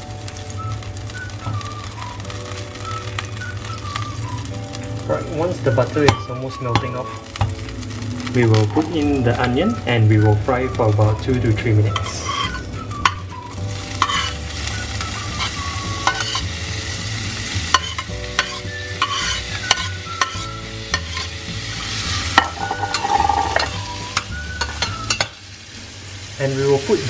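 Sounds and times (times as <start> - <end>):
onion sizzling in a pan: 0.0 - 27.0
metal spatula scraping: 11.8 - 25.4.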